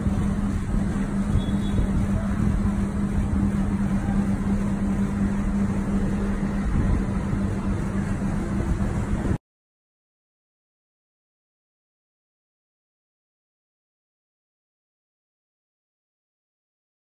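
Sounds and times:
mechanical hum: 0:00.0 - 0:09.4
rushing noise: 0:00.0 - 0:09.4.

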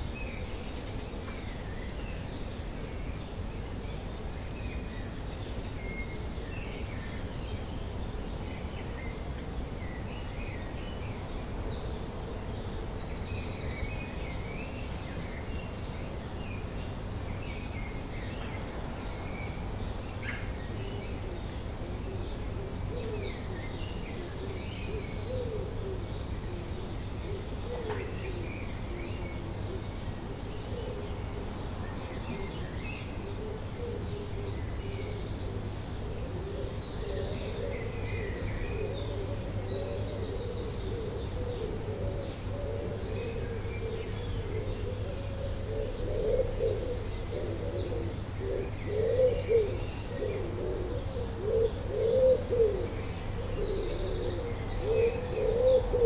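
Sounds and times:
songbird trills and chirps: 0:34.2 - 0:56.0.

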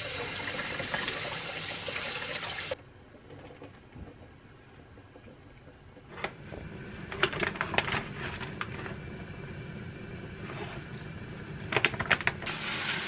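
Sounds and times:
plastic packaging crackling: 0:07.2 - 0:08.8, 0:11.7 - 0:13.0.

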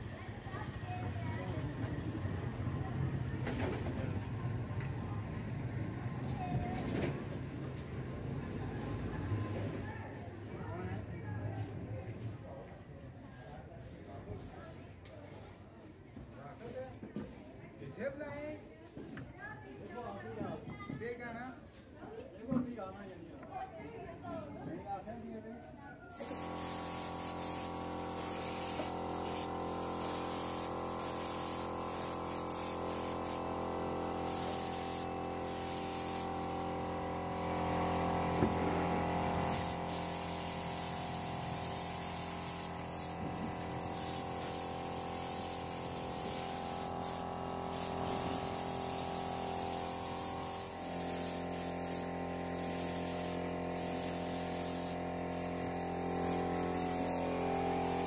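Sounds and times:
spray gun hissing: 0:26.2 - 0:58.0.

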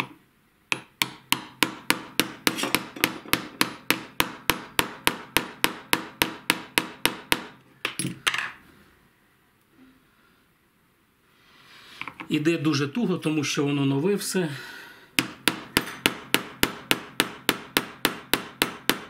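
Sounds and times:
small hammer tapping metal: 0:00.0 - 0:08.4, 0:15.2 - 0:19.0.

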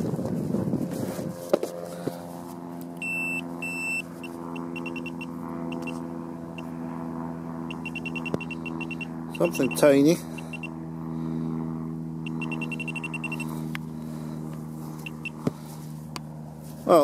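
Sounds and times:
steady low hum: 0:00.0 - 0:17.0
short high beeps: 0:03.0 - 0:04.0, 0:04.6 - 0:06.0, 0:07.7 - 0:09.8, 0:12.3 - 0:13.5
rapid pulsing beeps: 0:03.0 - 0:06.0, 0:07.7 - 0:10.8, 0:12.2 - 0:13.5, 0:15.0 - 0:15.4.

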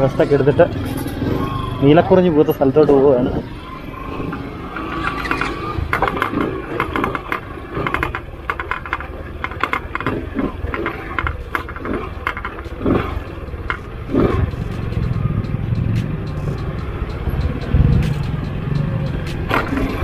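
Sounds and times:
motorcycle engine at low revs: 0:00.0 - 0:20.0
motorcycle clattering over bumps: 0:04.2 - 0:20.0.

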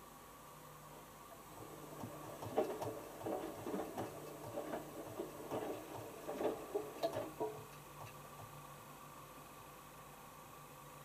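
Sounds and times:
faint machine hum: 0:00.0 - 0:11.0
laundry slapping and splashing: 0:01.8 - 0:07.6.

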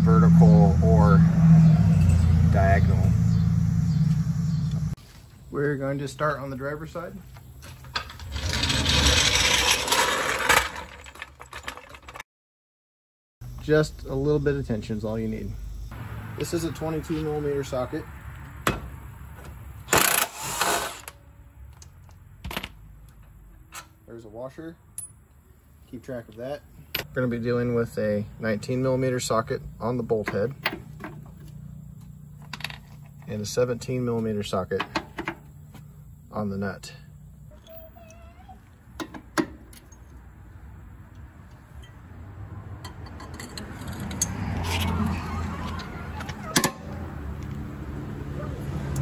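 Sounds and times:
low rumble: 0:00.0 - 0:05.0.

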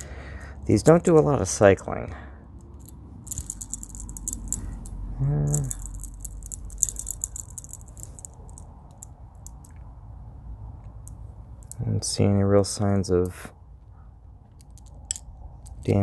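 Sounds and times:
pulley bearing rattling: 0:02.7 - 0:09.8.

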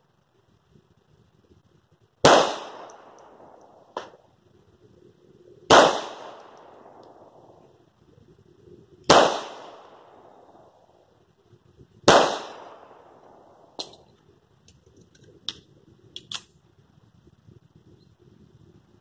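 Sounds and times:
pistol shots ringing: 0:02.2 - 0:04.2, 0:05.7 - 0:07.4, 0:09.1 - 0:10.7, 0:12.1 - 0:14.0.

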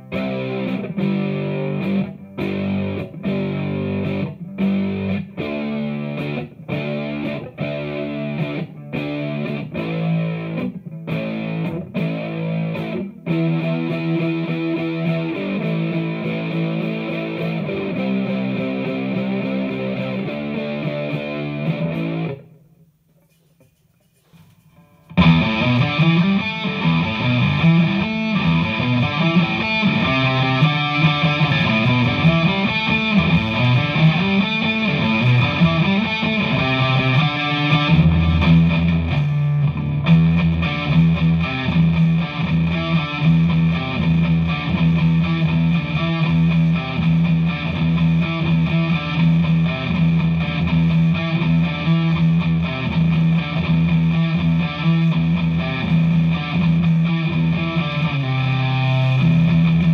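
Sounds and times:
distorted electric guitar: 0:00.0 - 0:23.4, 0:24.1 - 0:59.9.

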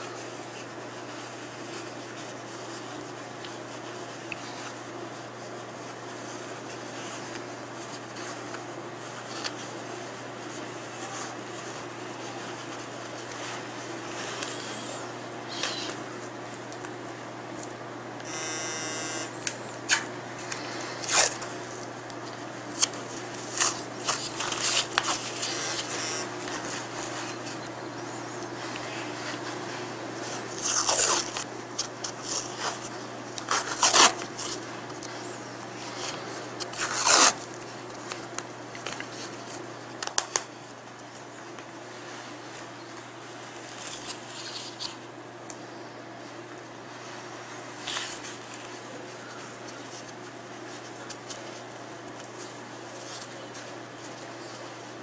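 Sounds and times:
bandage rustling and crackling: 0:00.0 - 0:14.6, 0:19.7 - 0:45.0
brief buzzing: 0:18.2 - 0:19.5, 0:25.7 - 0:26.4
tape ripping off roll: 0:21.0 - 0:21.5, 0:30.5 - 0:32.8, 0:33.4 - 0:34.6, 0:36.6 - 0:37.6.

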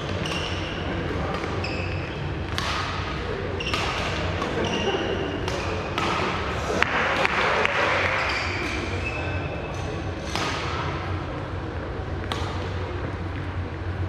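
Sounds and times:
racket hitting shuttlecock: 0:00.0 - 0:08.9, 0:09.8 - 0:11.2, 0:12.2 - 0:13.5
steady low hum: 0:08.6 - 0:14.0.

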